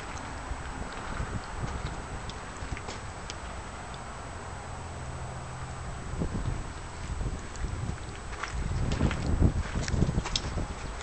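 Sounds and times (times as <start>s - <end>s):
footsteps on gravel: 0.0s - 3.5s, 7.0s - 11.0s.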